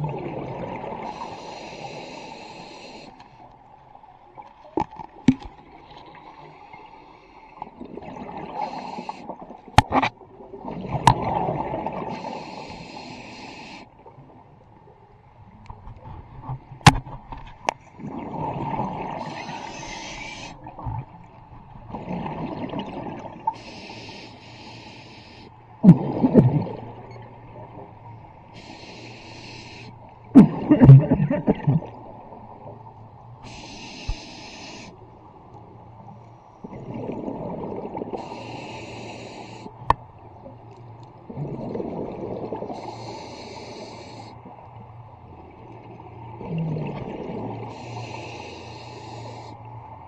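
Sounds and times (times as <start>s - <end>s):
exhaled bubbles rumbling: 0.0s - 1.1s, 7.7s - 8.8s, 9.4s - 12.2s, 18.0s - 23.6s, 25.8s - 28.1s, 30.2s - 33.0s, 36.6s - 38.3s, 41.2s - 42.9s, 45.7s - 47.8s
regulator breath hiss: 1.0s - 3.3s, 8.6s - 9.3s, 12.1s - 13.9s, 19.2s - 20.6s, 23.5s - 25.5s, 28.5s - 30.0s, 33.4s - 35.0s, 38.2s - 39.8s, 42.8s - 44.4s, 47.7s - 49.6s.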